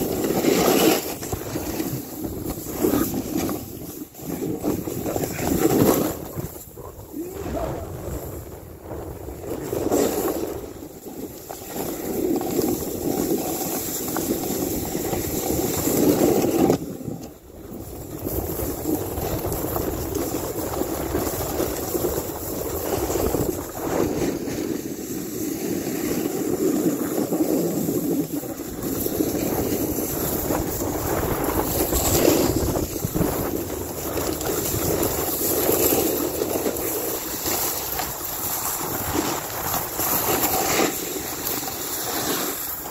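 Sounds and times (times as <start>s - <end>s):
snowboard scraping through snow: 0.0s - 42.9s
wind rushing over microphone: 0.0s - 42.9s.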